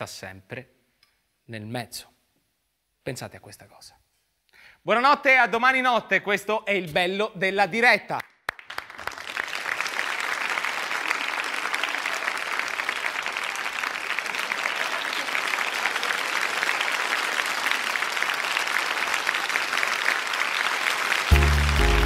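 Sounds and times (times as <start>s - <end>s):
audience applauding: 8.4s - 22.0s.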